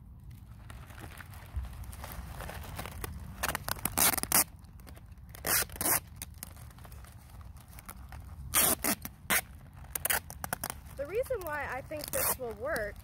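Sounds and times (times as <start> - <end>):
adhesive tape ripping off roll: 0.9 - 13.0.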